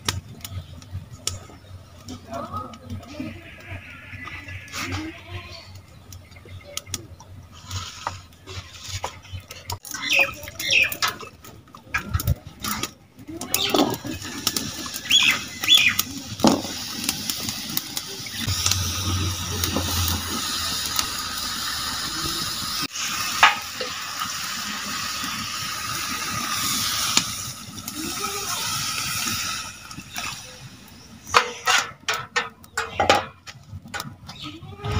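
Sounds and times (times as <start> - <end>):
food sizzling in hot pan: 13.6 - 31.6
water poured into pan: 13.8 - 31.8.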